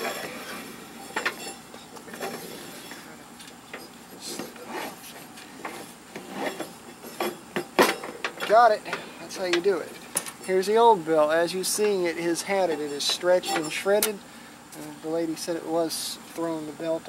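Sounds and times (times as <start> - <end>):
rubber belt rubbing and scraping: 4.2 - 7.3.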